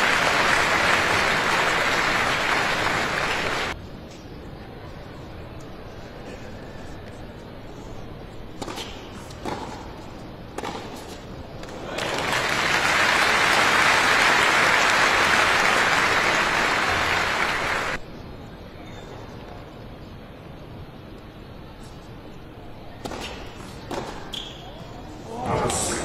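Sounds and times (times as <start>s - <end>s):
crowd applauding: 0.0s - 3.8s, 11.8s - 18.0s
racket striking tennis ball: 8.6s - 11.8s, 23.0s - 24.4s.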